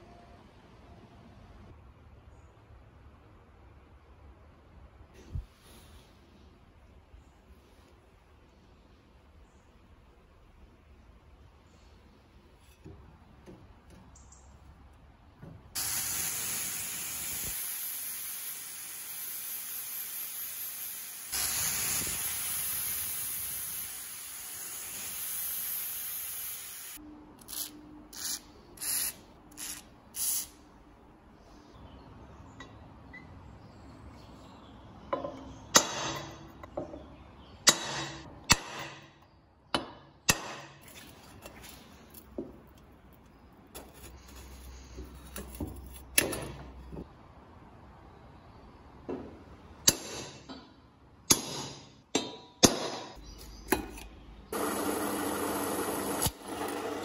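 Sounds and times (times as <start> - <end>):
aerosol spray hissing: 15.8 - 27.0.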